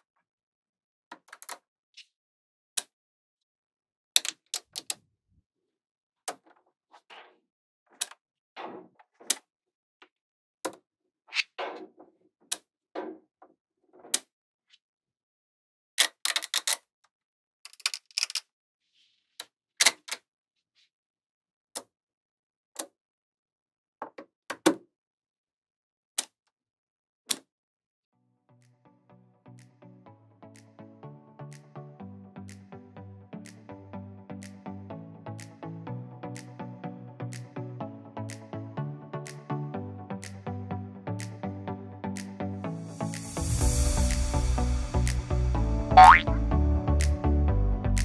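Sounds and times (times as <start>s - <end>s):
magnetic balls clicking: 46.0s - 46.2s.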